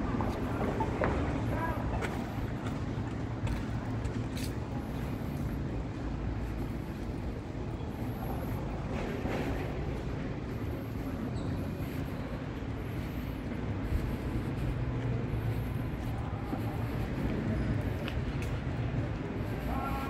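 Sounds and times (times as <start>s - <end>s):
low rumble of traffic: 0.0s - 20.0s.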